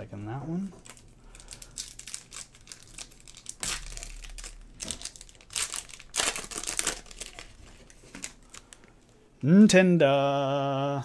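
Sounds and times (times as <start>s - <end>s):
plastic wrapper crinkling and tearing: 0.8s - 8.9s.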